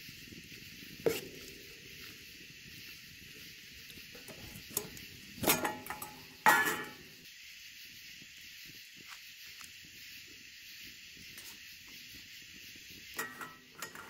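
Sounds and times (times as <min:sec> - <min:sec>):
steady high hiss: 0:00.0 - 0:14.0
cookware clanking on grill grate: 0:04.2 - 0:07.1, 0:13.2 - 0:14.0.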